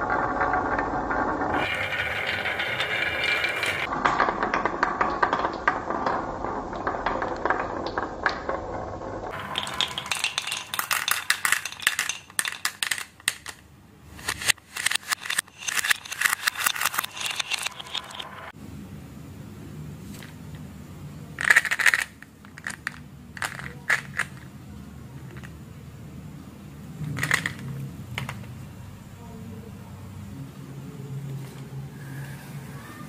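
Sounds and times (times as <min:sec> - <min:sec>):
balls clicking and knocking: 0:00.0 - 0:18.6, 0:21.3 - 0:25.8, 0:26.9 - 0:28.7
wooden balls rolling on wooden tracks: 0:00.0 - 0:18.6, 0:21.4 - 0:25.6, 0:27.0 - 0:28.6.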